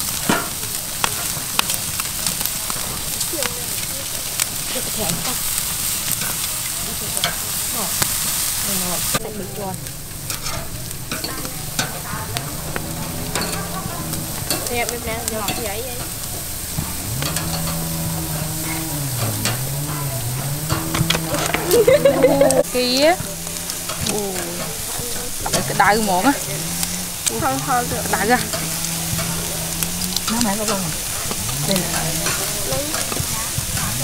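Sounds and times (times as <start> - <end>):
meat sizzling on a grill: 0.0 - 34.0
metal tongs clicking on grate: 7.2 - 8.1, 9.8 - 16.3, 17.0 - 34.0.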